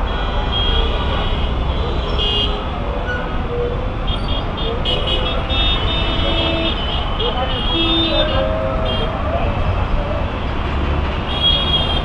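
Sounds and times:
low rumble of traffic engines: 0:00.0 - 0:12.0
vehicle horns honking: 0:00.1 - 0:02.6, 0:04.1 - 0:09.1, 0:11.3 - 0:12.0.

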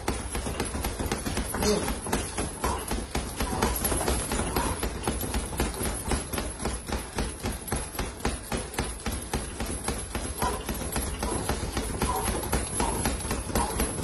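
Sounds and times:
boxing gloves punching heavy bag: 0:00.0 - 0:14.0.

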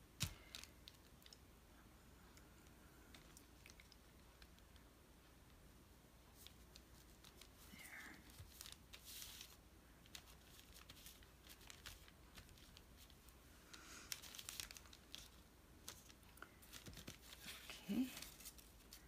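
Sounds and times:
paper rustling and crinkling: 0:06.3 - 0:19.0.

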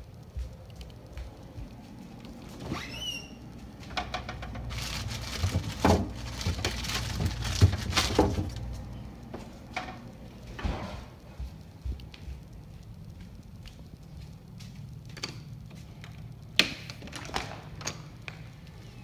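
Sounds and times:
refrigerator door opening: 0:02.5 - 0:08.8
short high squeak: 0:02.7 - 0:03.4
bottles rattling and clinking: 0:03.9 - 0:08.7.

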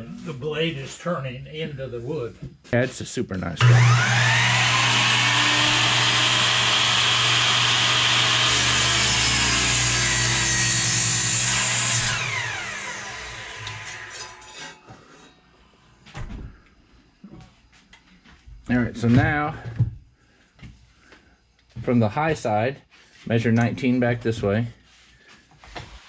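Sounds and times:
miter saw cutting wood: 0:03.6 - 0:14.6
saw blade winding down: 0:03.6 - 0:14.7.

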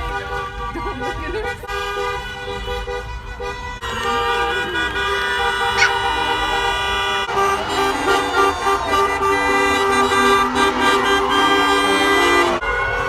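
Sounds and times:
many car horns honking: 0:00.0 - 0:13.0.

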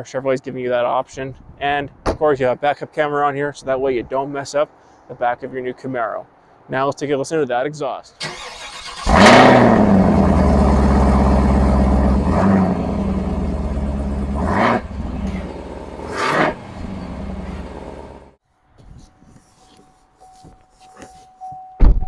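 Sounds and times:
car engine starting and idling: 0:08.2 - 0:18.4
engine revving: 0:08.2 - 0:18.4.

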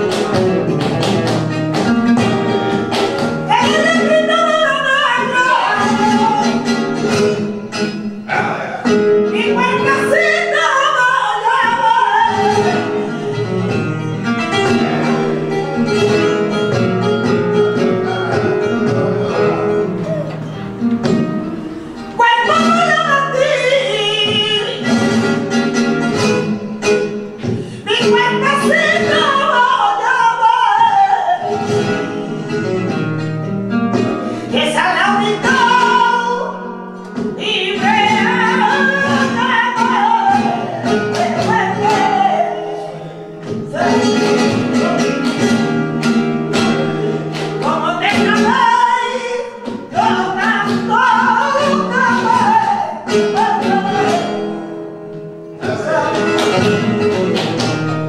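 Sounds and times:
rhythmic hand clapping: 0:00.0 - 0:03.9, 0:37.9 - 0:42.2, 0:43.4 - 0:54.5, 0:55.6 - 0:58.0
flamenco guitar: 0:00.0 - 0:58.0
woman singing: 0:02.1 - 0:07.4, 0:09.2 - 0:14.0, 0:22.0 - 0:25.4, 0:27.4 - 0:32.3, 0:34.0 - 0:45.4, 0:46.8 - 0:54.7.

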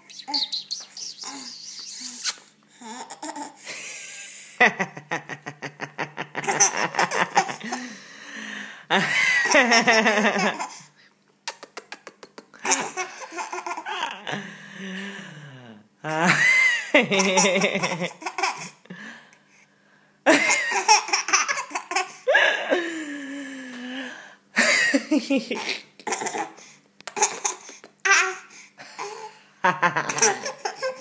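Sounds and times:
baby laughing: 0:00.0 - 0:04.2, 0:05.4 - 0:07.9, 0:09.3 - 0:10.9, 0:12.6 - 0:14.3, 0:16.8 - 0:18.8, 0:20.3 - 0:22.8, 0:25.2 - 0:29.3, 0:29.9 - 0:31.0.

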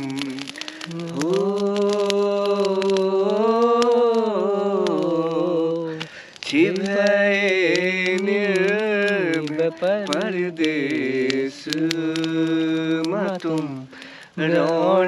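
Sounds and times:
man singing long notes: 0:00.0 - 0:15.0
quick breath: 0:05.9 - 0:06.4, 0:13.9 - 0:14.4.

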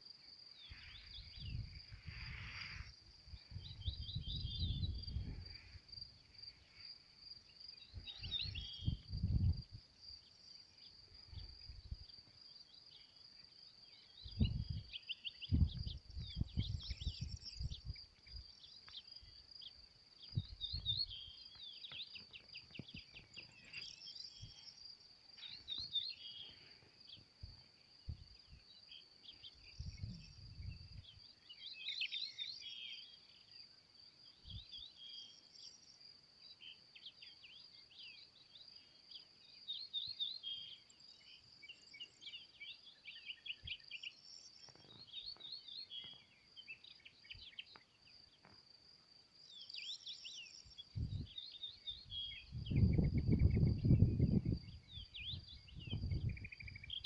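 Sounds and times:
insects trilling: 0:00.0 - 0:57.0
small birds singing: 0:00.0 - 0:57.0
wind rumble on microphone: 0:00.7 - 0:06.0, 0:07.9 - 0:09.9, 0:11.3 - 0:12.2, 0:14.2 - 0:18.5, 0:20.2 - 0:21.3, 0:27.4 - 0:28.6, 0:29.5 - 0:31.3, 0:50.8 - 0:57.0.

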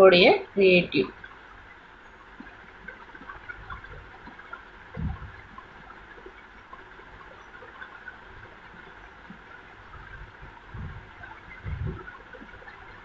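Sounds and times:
dull low thump: 0:05.0 - 0:05.4, 0:10.2 - 0:12.1.

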